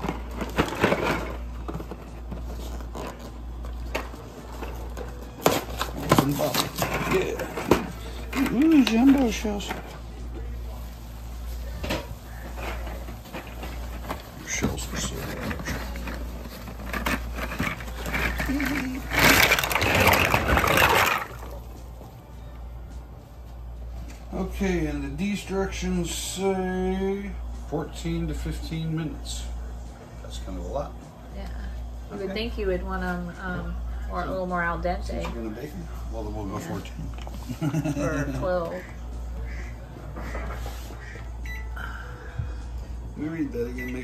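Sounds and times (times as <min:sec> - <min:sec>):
pasta rattling in cardboard box: 0:15.0 - 0:21.6
pasta pouring into water: 0:19.2 - 0:21.6.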